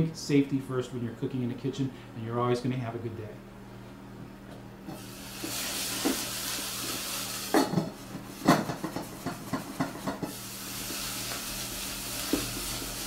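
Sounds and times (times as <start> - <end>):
vegetables sizzling in a pan: 4.9 - 13.0.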